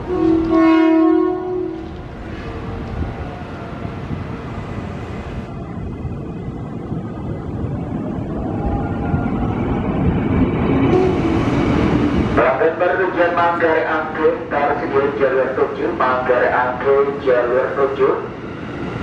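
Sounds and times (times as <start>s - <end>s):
train horn: 0.0s - 2.6s, 10.9s - 11.4s
freight wagons rumbling on rails: 0.0s - 19.0s.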